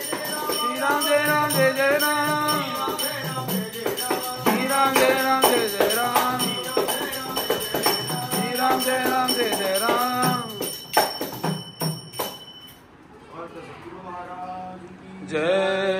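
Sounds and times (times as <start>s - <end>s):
men singing a chant: 0.0s - 10.8s
small hand cymbals: 0.0s - 12.8s.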